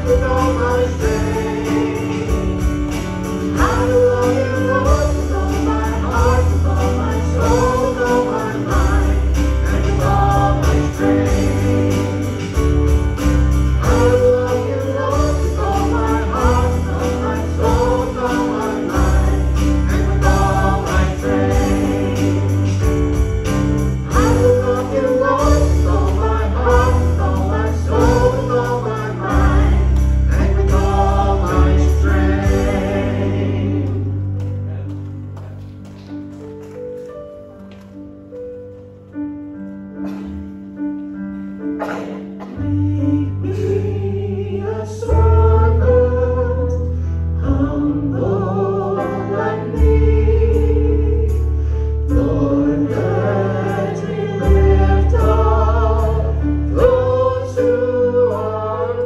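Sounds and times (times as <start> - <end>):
voices singing: 0.0 - 12.8, 13.8 - 34.4, 47.4 - 51.3, 52.1 - 59.0
jingling percussion: 0.0 - 33.4
worship band music: 0.0 - 59.0.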